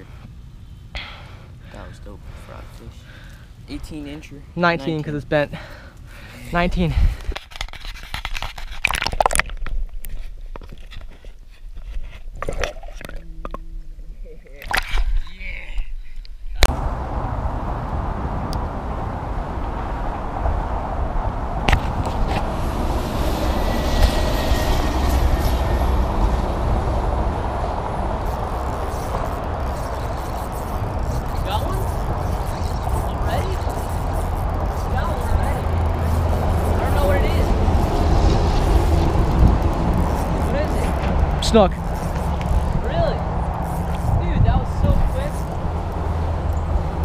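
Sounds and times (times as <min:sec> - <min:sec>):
road traffic rumble: 0:16.6 - 0:47.0.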